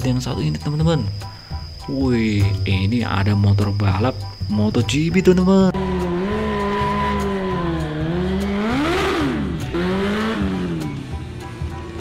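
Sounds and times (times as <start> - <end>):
motorcycle engine revving: 5.4 - 12.0.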